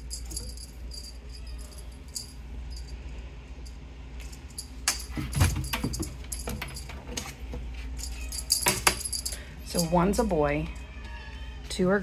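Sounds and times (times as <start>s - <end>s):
small bell jingling: 0.0s - 7.0s, 8.0s - 10.4s
steady low hum: 0.0s - 11.0s.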